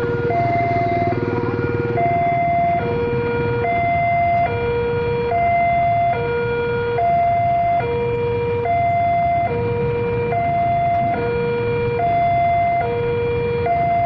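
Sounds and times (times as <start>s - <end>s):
level crossing two-note alarm: 0.0s - 6.3s
motorcycle and car engines: 0.0s - 14.0s.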